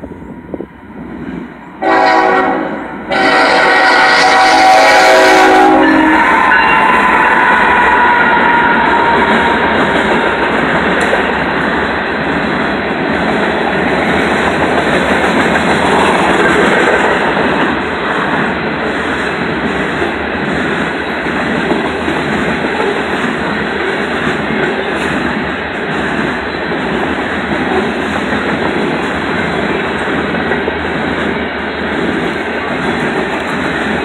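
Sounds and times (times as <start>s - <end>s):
train wheels rumbling on rails: 0.0s - 34.0s
train horn: 1.8s - 9.4s.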